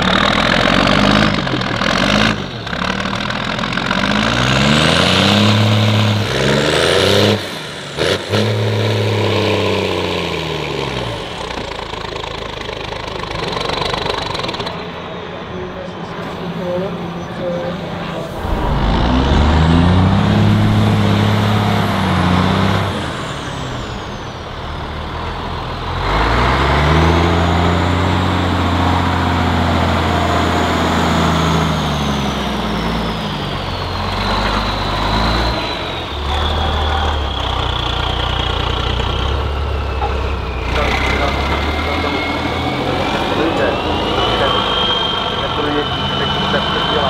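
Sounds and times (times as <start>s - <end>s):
diesel truck engine revving: 0.0s - 47.0s
high whistle: 41.8s - 47.0s.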